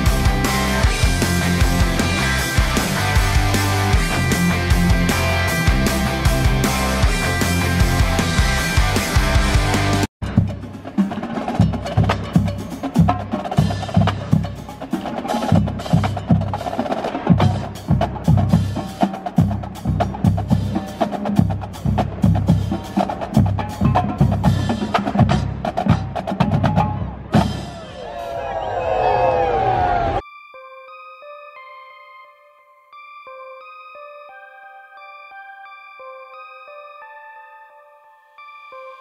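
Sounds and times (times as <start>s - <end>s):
bass drums: 0.0s - 10.7s
background music: 0.0s - 39.0s.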